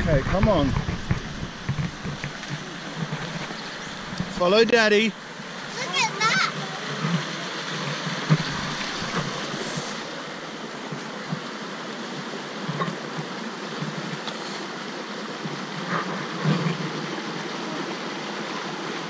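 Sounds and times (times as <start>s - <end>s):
creek water over rocks: 0.0s - 19.0s
soft knocks: 0.1s - 4.4s.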